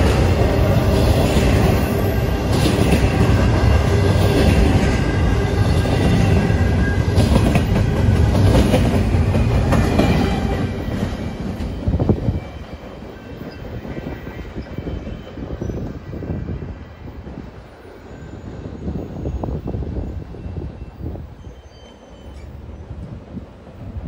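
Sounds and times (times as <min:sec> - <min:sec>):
freight train rumbling past: 0:00.0 - 0:24.0.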